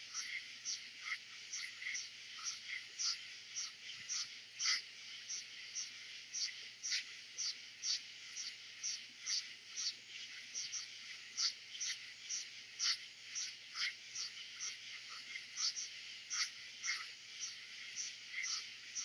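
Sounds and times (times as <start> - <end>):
insects trilling: 0.0 - 19.0
frogs calling: 0.1 - 19.0.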